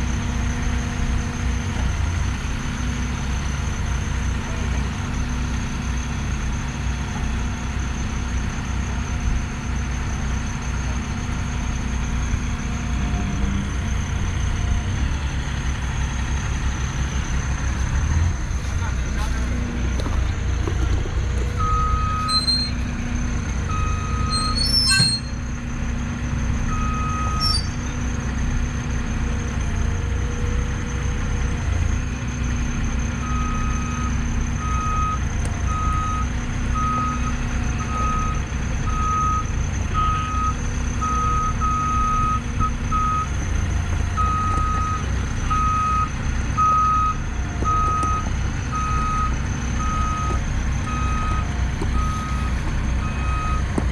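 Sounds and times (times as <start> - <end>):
forklift engine running: 0.0 - 53.9
reversing alarm beeping: 21.5 - 28.3, 30.4 - 53.8.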